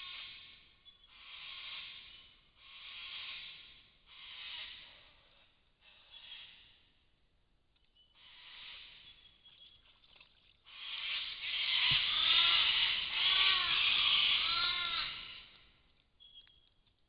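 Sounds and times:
animal cries: 11.4 - 15.6.

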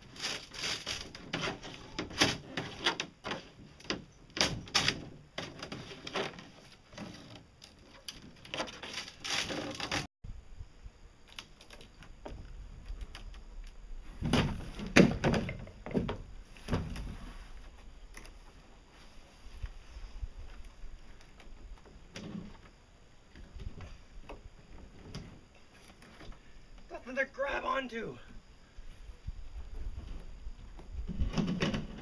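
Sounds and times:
fiberglass shell crackling and scraping: 0.0 - 10.1
heavy thuds and rattles: 14.1 - 17.2.

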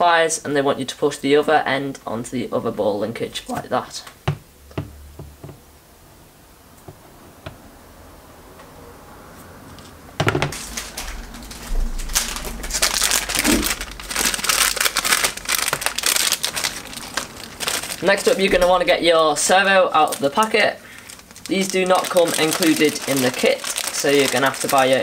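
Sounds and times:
plastic packet crinkling: 10.5 - 25.0.

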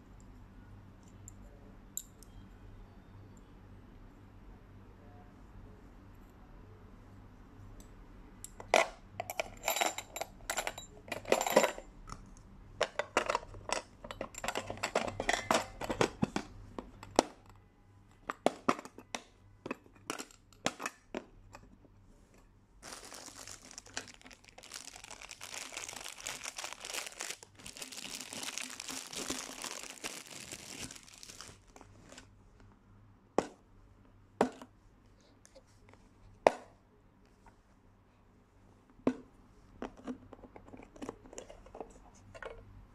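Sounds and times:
lunchbox and utensils clattering: 8.6 - 12.0, 12.8 - 17.4, 18.3 - 21.8, 22.8 - 32.2
crinkling rustle: 22.8 - 32.3.

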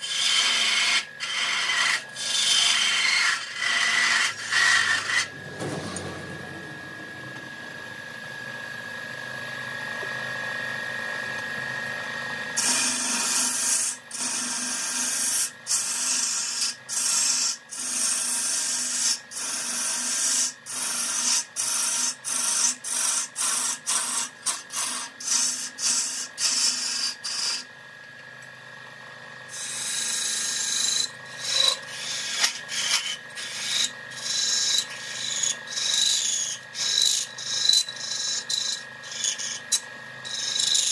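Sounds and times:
turning tool scraping wood: 0.0 - 6.0, 29.5 - 40.9
wood lathe whine: 0.0 - 40.9.

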